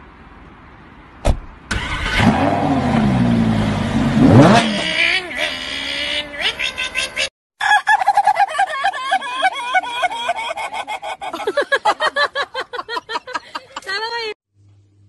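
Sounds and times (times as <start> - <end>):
small car motor revving: 1.7 - 6.1.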